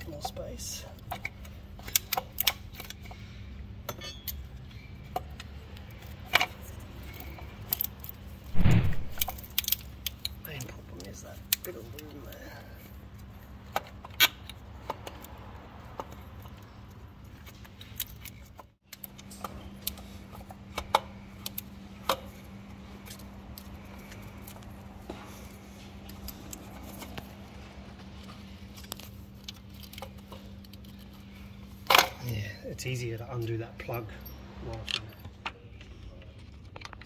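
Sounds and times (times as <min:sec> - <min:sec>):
steady low hum: 0:08.5 - 0:09.5.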